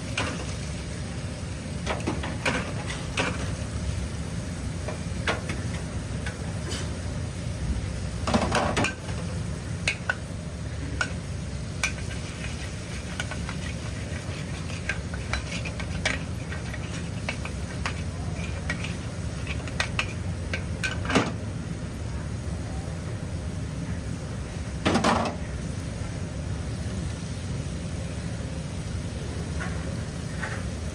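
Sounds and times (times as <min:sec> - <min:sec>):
eggs sizzling: 0:00.0 - 0:21.5
metal spatula scraping a wok: 0:11.8 - 0:21.0.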